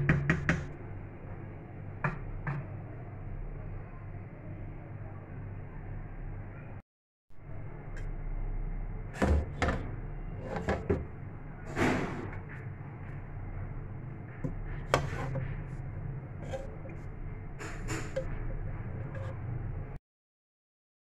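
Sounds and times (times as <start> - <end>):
knocks and clatters in a kitchen: 0.0 - 0.8, 2.0 - 2.9, 9.1 - 15.8, 16.4 - 20.0
steady low hum: 7.4 - 20.0.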